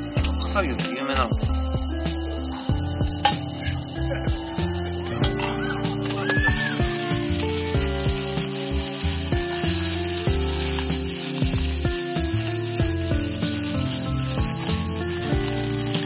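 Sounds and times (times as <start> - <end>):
instrumental music: 0.0 - 16.0
food sizzling in a pan: 5.5 - 16.0.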